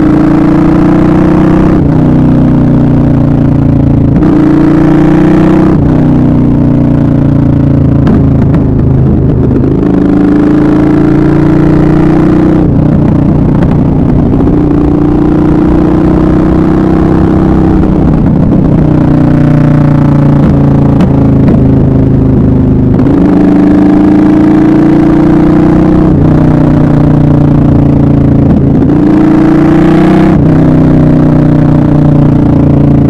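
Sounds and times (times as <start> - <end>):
motorcycle engine running: 0.0 - 33.0.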